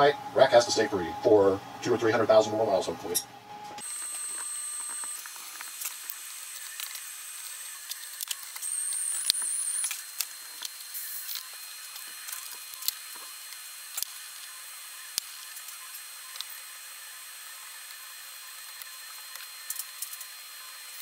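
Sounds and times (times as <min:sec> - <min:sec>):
small metal parts clicking: 0:03.9 - 0:14.4, 0:18.8 - 0:20.4.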